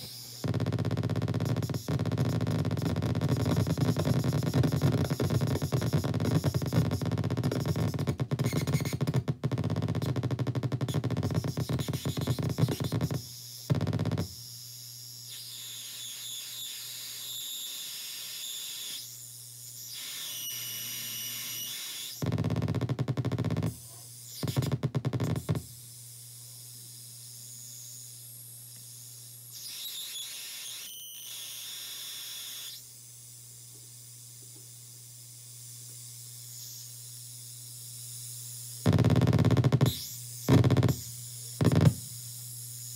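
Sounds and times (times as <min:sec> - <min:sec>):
harsh static: 0:00.0 - 0:14.3, 0:20.0 - 0:25.6, 0:38.8 - 0:42.1.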